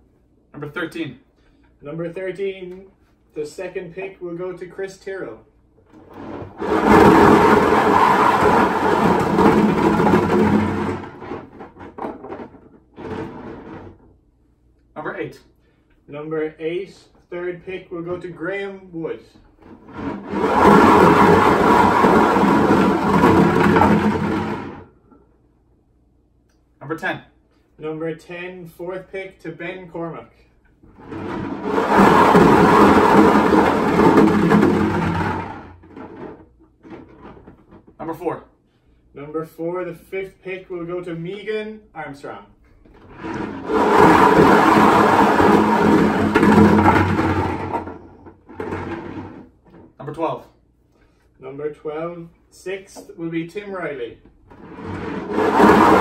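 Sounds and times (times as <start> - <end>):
golf balls rattling in a container: 6.0 - 14.2, 19.6 - 25.2, 30.8 - 38.0, 42.8 - 50.1, 54.4 - 56.0.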